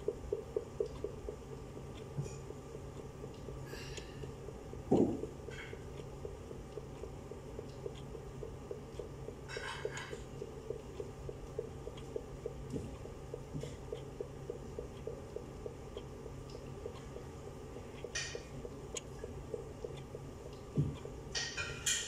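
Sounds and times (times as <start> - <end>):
faint even ticking: 0.0 - 22.0
dishes clinking: 21.3 - 22.0.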